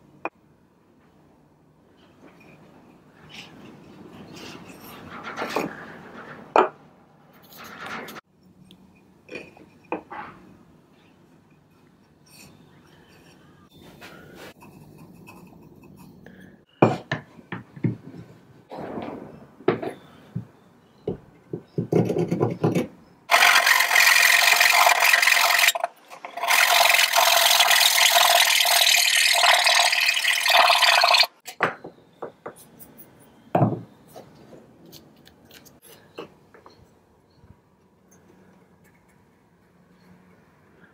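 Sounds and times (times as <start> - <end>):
handsaw cutting wood: 23.3 - 29.0.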